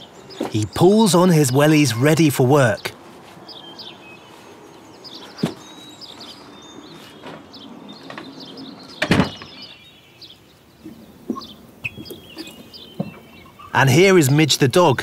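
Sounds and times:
small birds chirping: 0.0s - 15.0s
door thudding shut: 9.0s - 9.6s.

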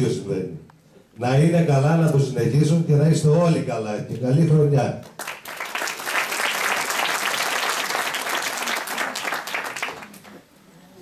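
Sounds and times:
people clapping: 5.0s - 10.5s.

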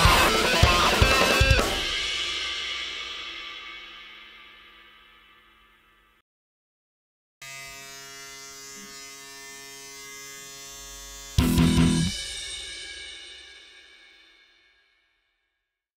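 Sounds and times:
buzzing drone: 10.6s - 12.2s.

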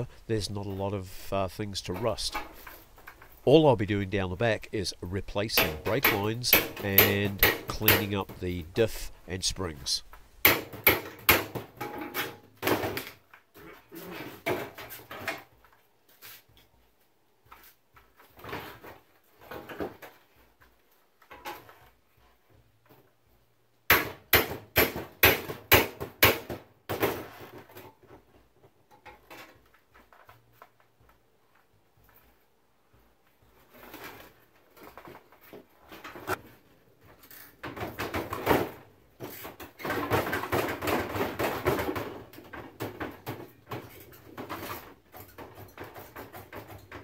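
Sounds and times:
hammer striking metal chisel: 5.6s - 8.2s.

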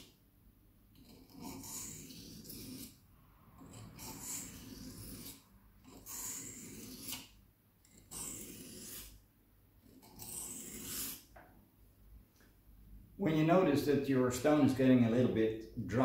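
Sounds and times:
knife scraping on whetstone: 1.0s - 3.0s, 3.6s - 9.2s, 9.8s - 11.3s.

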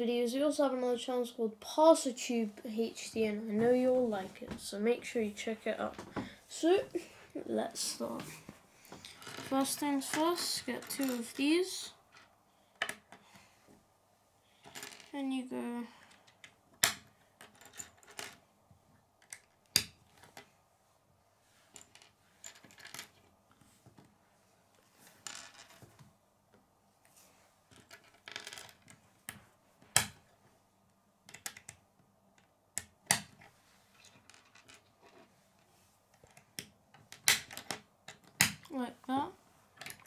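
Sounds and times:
plastic parts rattling: 33.2s - 35.3s.

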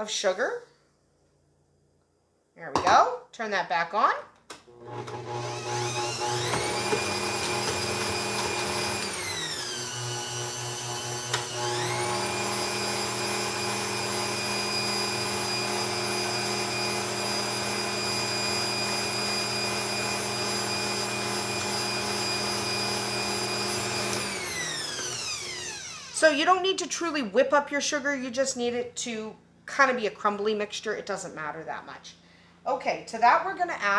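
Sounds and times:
stand mixer motor whine: 4.7s - 26.2s.

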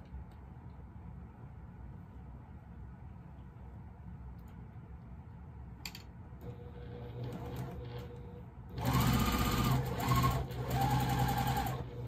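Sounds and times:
sewing machine stitching: 6.4s - 12.0s.

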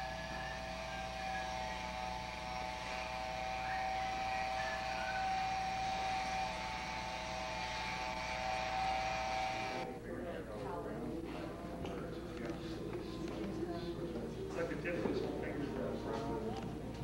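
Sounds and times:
mechanical drone: 0.0s - 9.8s.

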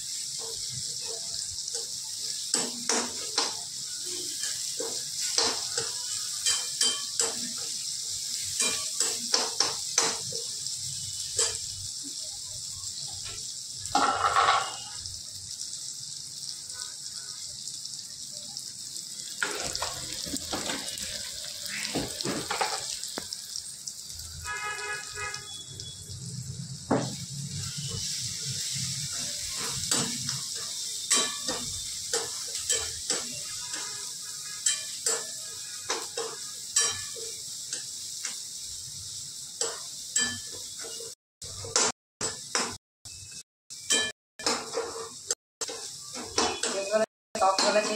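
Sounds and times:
food sizzling in a wok: 0.0s - 47.9s
metal ladle scraping a pan: 14.0s - 15.0s.

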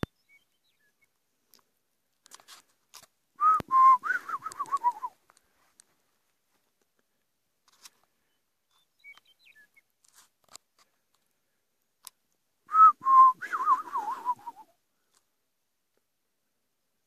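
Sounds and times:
faint clicks: 1.0s - 6.0s
person whistling: 3.4s - 5.2s, 12.7s - 14.7s.

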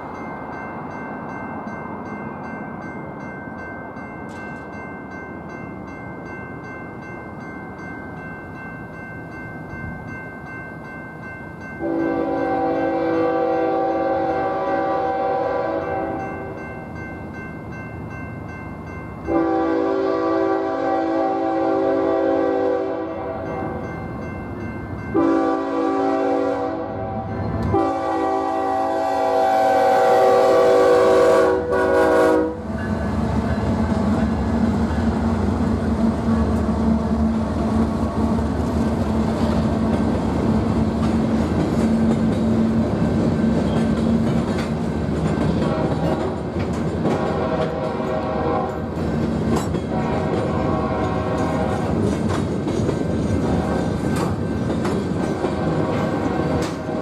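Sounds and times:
crossing bell ringing: 0.0s - 29.4s, 30.1s - 57.0s
diesel locomotive engine rumble: 9.3s - 57.0s
train horn blasts: 11.8s - 16.2s, 19.3s - 23.8s, 25.1s - 32.8s, 45.6s - 46.4s, 47.1s - 48.9s, 49.8s - 52.0s, 55.6s - 57.0s.

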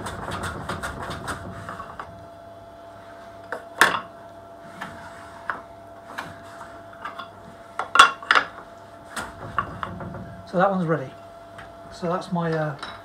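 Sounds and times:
wooden knocks and clicks: 0.0s - 2.2s, 9.2s - 10.6s.

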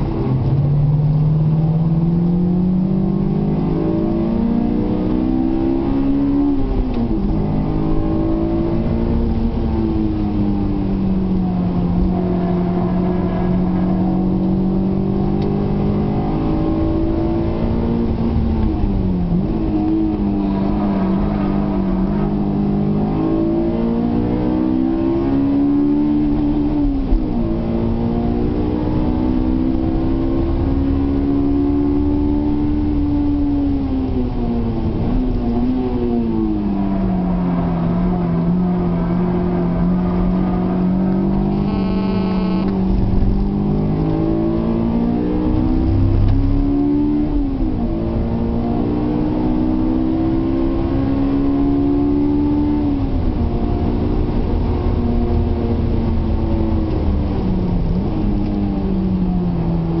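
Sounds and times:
car engine revving from cabin: 0.0s - 60.0s
short high-pitched tone: 41.4s - 42.7s.

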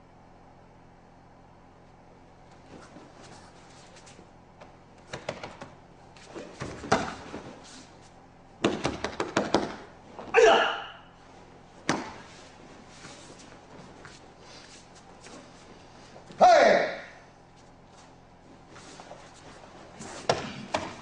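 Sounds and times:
feet scuffing and slapping on mat: 2.5s - 10.5s, 11.2s - 16.4s, 17.5s - 21.0s
loud martial arts shout: 10.3s - 11.1s, 16.3s - 17.2s.

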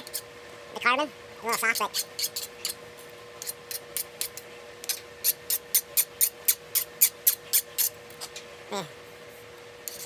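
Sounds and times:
metal file rasping on steel: 1.6s - 2.8s.

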